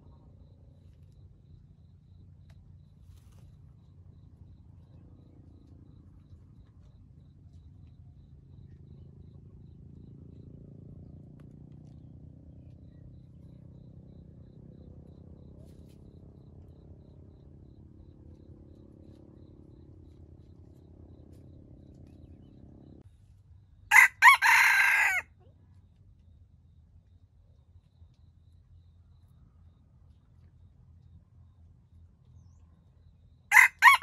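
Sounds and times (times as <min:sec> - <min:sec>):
faint low hum: 0:00.0 - 0:34.0
rooster crowing: 0:23.9 - 0:25.3, 0:33.5 - 0:34.0.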